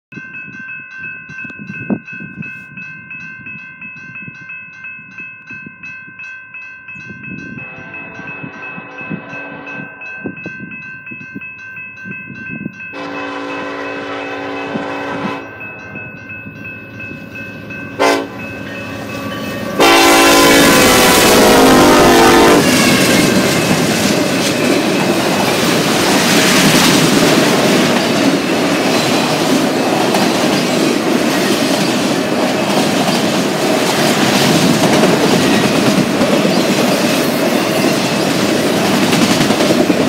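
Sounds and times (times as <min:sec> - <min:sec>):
freight locomotive horn blasts: 0:07.5 - 0:10.1, 0:12.9 - 0:15.7, 0:18.0 - 0:23.4.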